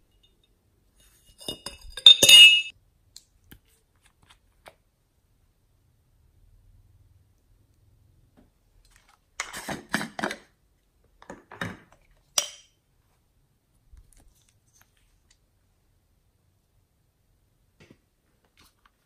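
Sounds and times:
sharp glass clink: 1.4s - 2.7s.

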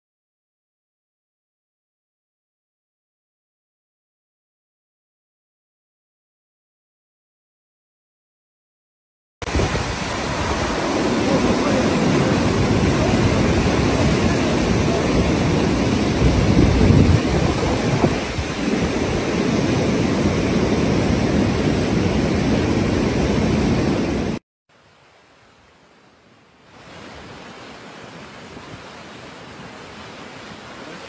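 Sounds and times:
heavy rain: 9.4s - 31.0s
rushing floodwater: 9.4s - 31.0s.

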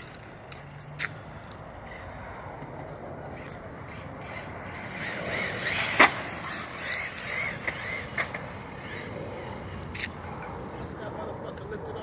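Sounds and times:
rc truck motor whining: 3.8s - 10.1s.

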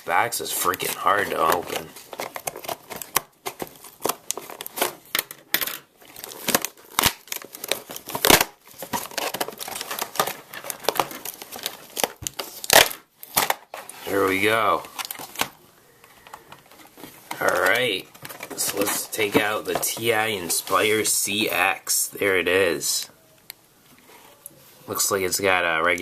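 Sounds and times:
packaging crinkling and tearing: 0.0s - 15.6s, 16.2s - 21.2s
loud packaging rasps: 6.1s - 13.7s.

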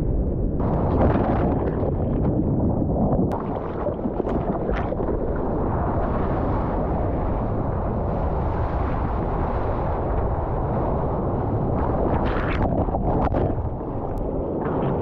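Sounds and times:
wind buffeting microphone: 0.0s - 15.0s
rushing water: 3.2s - 7.4s.

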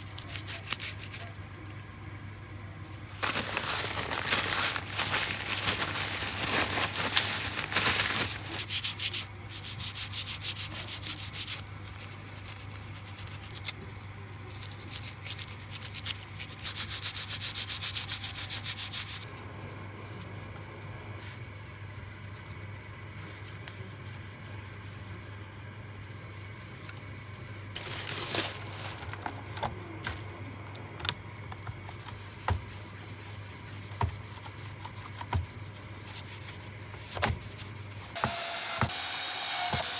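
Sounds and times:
paper towel wiping metal part: 31.9s - 38.2s.

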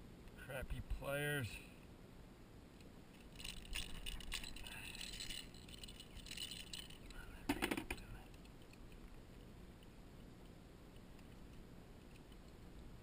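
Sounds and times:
metal pliers and hooks clinking: 3.1s - 7.2s.

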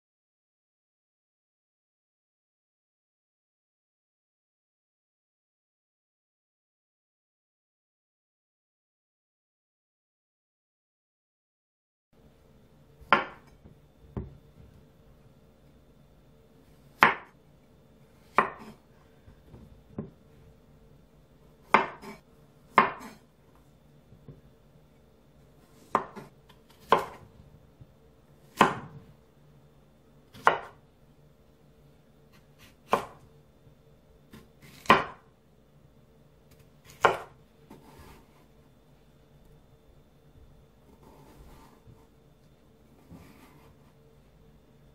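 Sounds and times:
knife chopping on wooden board: 13.0s - 14.4s, 17.0s - 17.4s, 18.2s - 18.8s, 21.6s - 23.2s, 25.7s - 27.2s, 28.5s - 29.1s, 30.3s - 30.8s, 32.3s - 33.2s, 34.3s - 35.3s, 36.8s - 38.2s, 43.0s - 43.8s.

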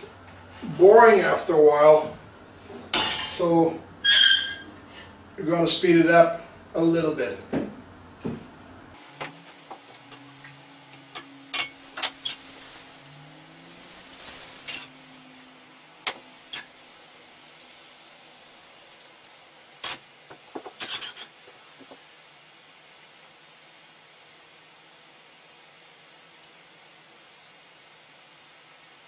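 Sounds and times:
batter sizzling in frying pan: 11.1s - 22.1s.

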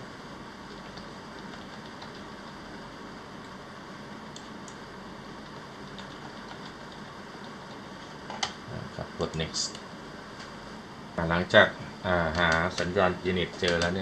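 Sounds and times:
keyboard keys clicking: 0.9s - 2.3s, 5.4s - 8.5s, 12.3s - 14.0s.

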